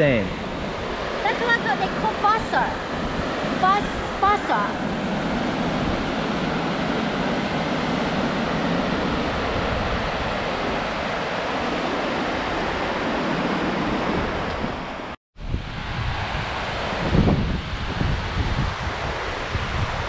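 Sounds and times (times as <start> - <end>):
waterfall roaring: 0.0 - 15.1.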